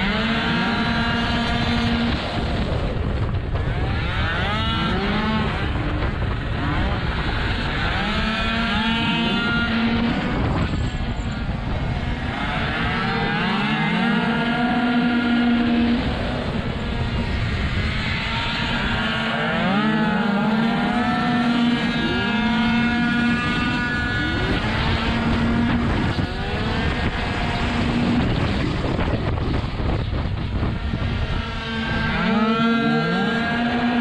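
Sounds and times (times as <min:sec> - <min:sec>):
two-stroke scooter engines buzzing: 0:00.0 - 0:34.0
wind rush on microphone: 0:00.0 - 0:34.0.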